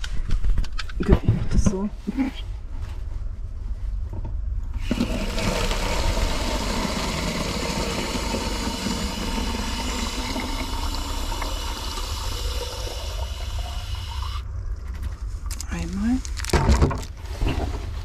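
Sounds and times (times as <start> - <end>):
tap water running into bottle: 4.8 - 15.6.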